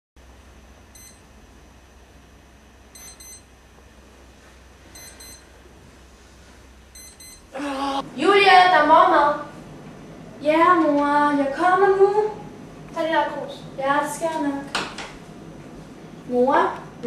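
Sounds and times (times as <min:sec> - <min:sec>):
digital alarm clock beeping: 0:01.0 - 0:01.2, 0:03.0 - 0:03.5, 0:05.0 - 0:05.5, 0:07.0 - 0:07.5.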